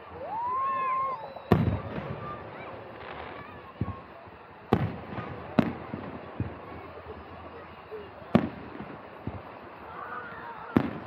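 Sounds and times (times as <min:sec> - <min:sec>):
firework shells bursting: 0:01.3 - 0:11.0.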